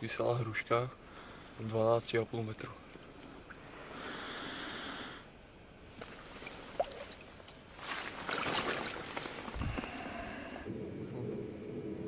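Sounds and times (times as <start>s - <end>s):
rustle: 5.8s - 12.0s
water sloshing and splashing: 5.9s - 9.8s.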